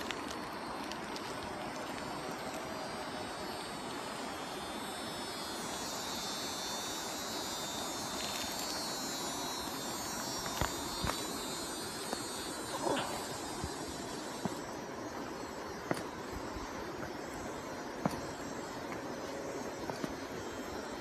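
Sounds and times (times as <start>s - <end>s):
high buzzing drone: 0.0s - 21.0s.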